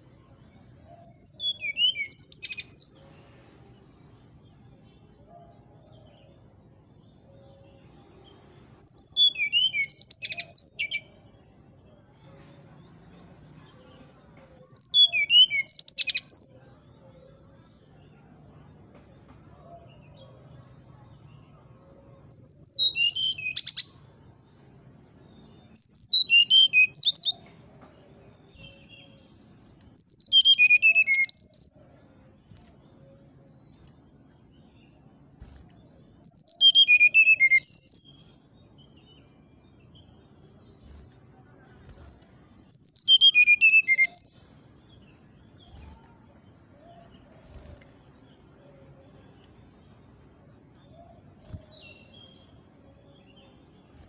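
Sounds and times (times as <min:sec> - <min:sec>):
bird singing high clear notes: 0:36.3 - 0:38.3, 0:42.7 - 0:44.6.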